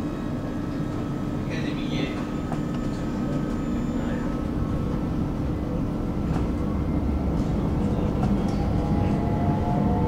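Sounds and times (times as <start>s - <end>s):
tram rumbling on rails: 0.0s - 10.0s.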